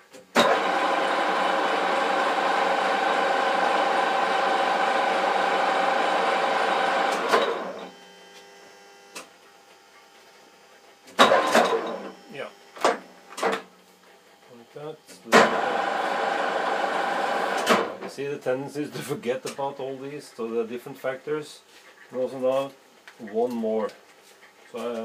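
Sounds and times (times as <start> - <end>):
metal lathe whining: 0.4 - 8.0, 15.4 - 17.8.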